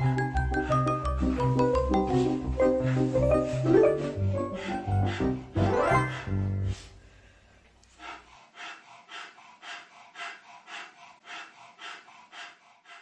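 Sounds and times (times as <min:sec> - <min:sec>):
dog huffing and snorting: 0:00.0 - 0:07.0.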